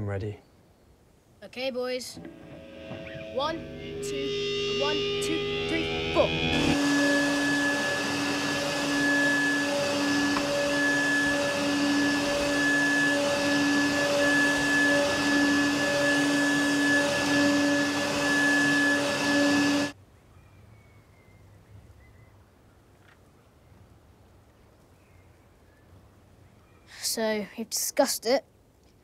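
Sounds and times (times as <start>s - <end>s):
vacuum cleaner running: 2.2s - 20.0s.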